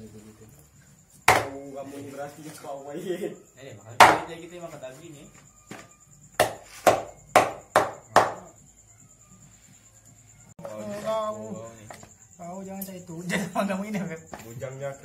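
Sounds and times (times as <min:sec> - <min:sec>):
knife chopping on wooden board: 0:01.3 - 0:01.6, 0:04.0 - 0:04.3, 0:06.4 - 0:08.4.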